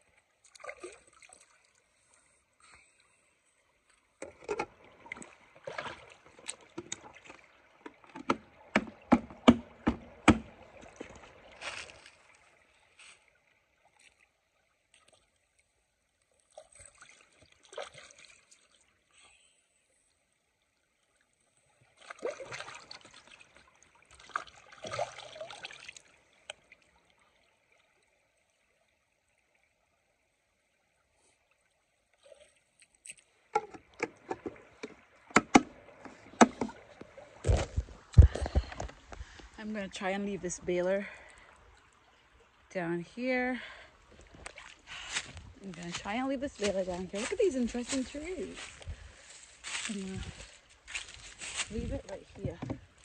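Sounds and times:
water splashing in bucket: 0.5s - 1.6s, 4.2s - 13.2s, 16.5s - 18.8s, 21.9s - 26.7s, 43.6s - 53.0s
sharp water slaps: 8.3s - 11.2s.

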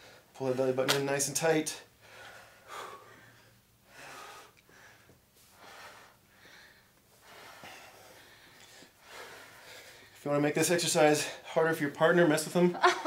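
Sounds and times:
person breathing heavily: 1.9s - 10.2s.

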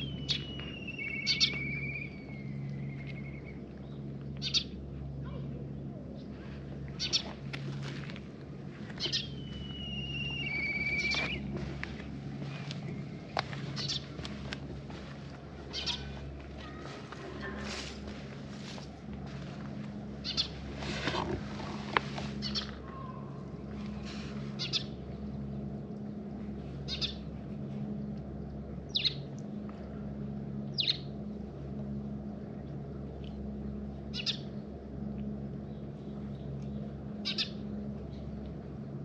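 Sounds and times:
bird chirping: 0.0s - 4.8s, 9.0s - 11.5s, 12.9s - 14.2s, 15.7s - 16.2s, 24.5s - 25.0s, 26.8s - 27.3s
steady low hum: 0.0s - 39.0s.

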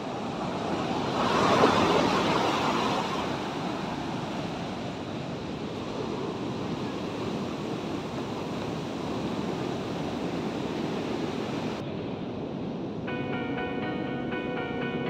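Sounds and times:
ocean surf breaking: 0.0s - 15.0s
soft music: 13.1s - 15.0s.

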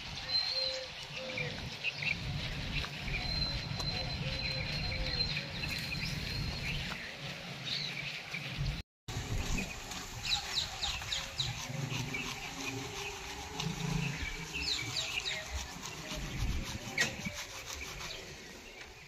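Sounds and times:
low bird calls: 0.0s - 8.8s
birds chirping and calling: 0.0s - 19.0s.

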